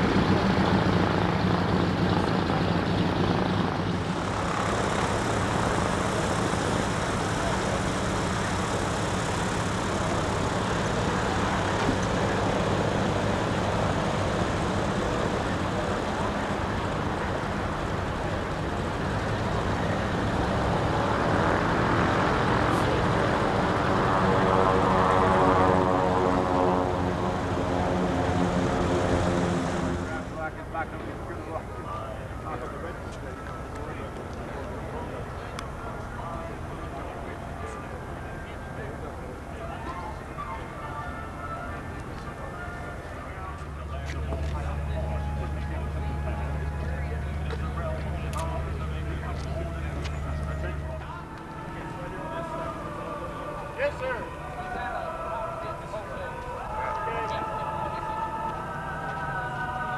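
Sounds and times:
propeller aircraft engine drone: 0:00.0 - 0:59.9.

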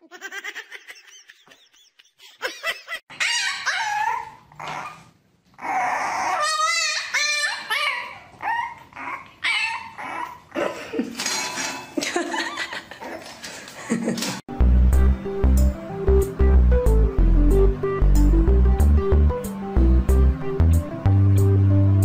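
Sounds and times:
dogs whining and yipping: 0:03.1 - 0:10.6.

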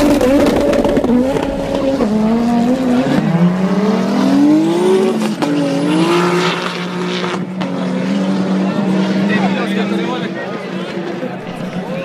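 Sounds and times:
race car engine accelerating: 0:00.0 - 0:12.0.

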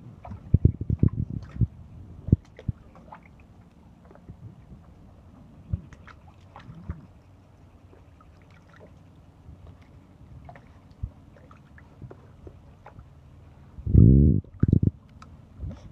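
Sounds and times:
puppy splashing water in tub: 0:00.0 - 0:05.1, 0:05.7 - 0:13.2.

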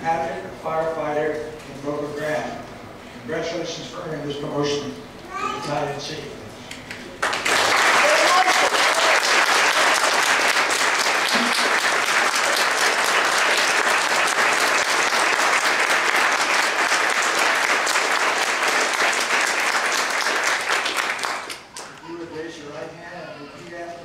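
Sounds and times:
audience applauding: 0:07.2 - 0:22.0.

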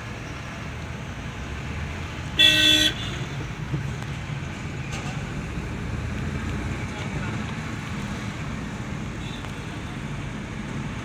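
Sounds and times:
car engine and tyres rumbling: 0:00.0 - 0:11.0
vehicle horn honk: 0:02.4 - 0:03.2.

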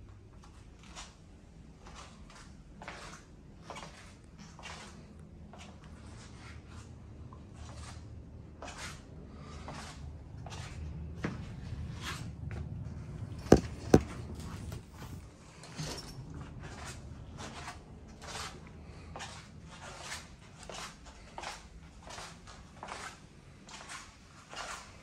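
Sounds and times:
sharp knocks: 0:13.4 - 0:15.2
footsteps walking: 0:13.4 - 0:15.3.

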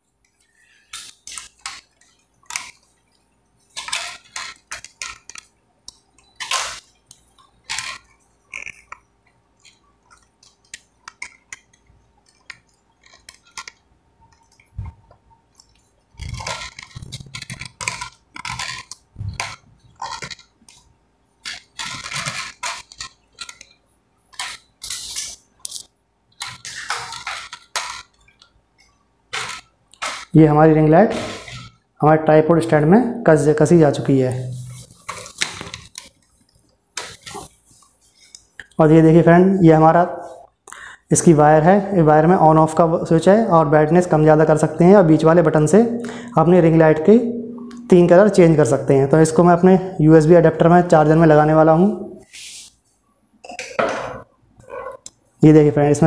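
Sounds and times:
plastic clicks and rattles: 0:03.7 - 0:30.3.

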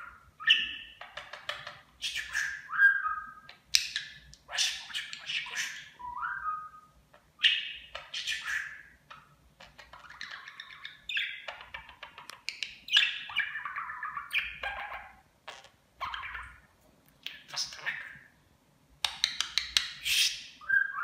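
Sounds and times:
budgerigar chattering: 0:00.4 - 0:02.7, 0:03.6 - 0:06.0, 0:07.4 - 0:16.6, 0:17.3 - 0:18.3.

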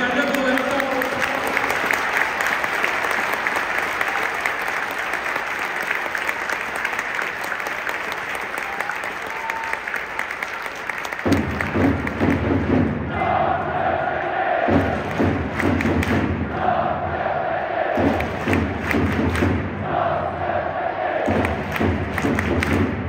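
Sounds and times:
stadium crowd applauding: 0:00.0 - 0:12.9, 0:14.2 - 0:16.7, 0:17.9 - 0:19.6, 0:21.2 - 0:23.0
deep crowd roar: 0:13.1 - 0:15.6, 0:16.4 - 0:22.3.

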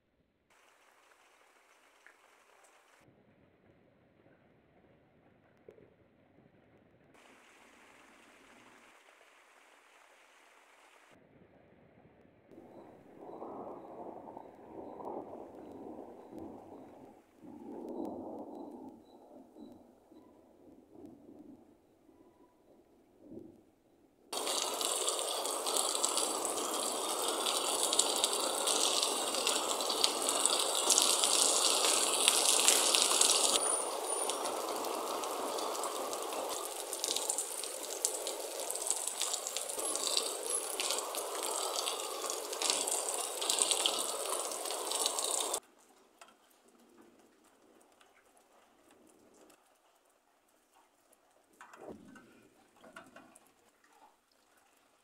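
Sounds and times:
heavy rain pouring: 0:07.2 - 0:11.1, 0:24.3 - 0:45.6.

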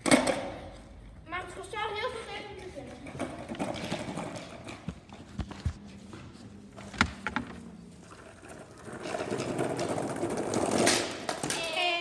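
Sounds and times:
skateboard wheels rolling: 0:02.9 - 0:05.8, 0:06.8 - 0:11.6.

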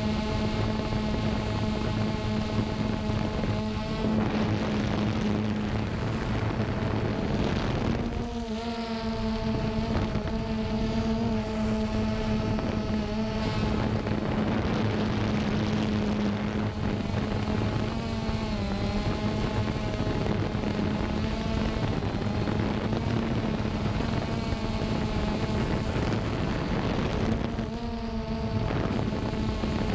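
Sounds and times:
drone propellers whirring: 0:00.0 - 0:29.9.

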